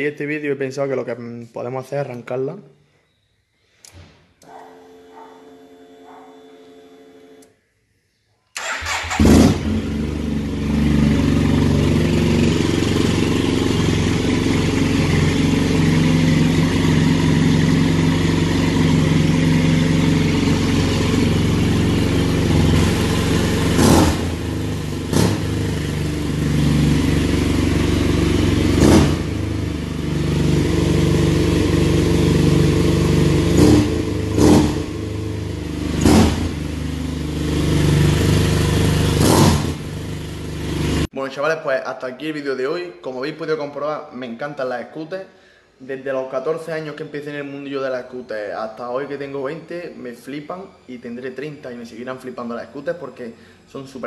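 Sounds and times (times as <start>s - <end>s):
scooter engine starting and idling: 8.6s - 41.1s.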